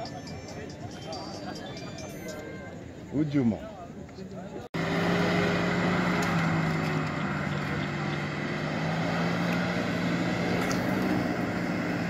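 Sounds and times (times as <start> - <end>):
car engine running steadily: 4.8 - 12.0.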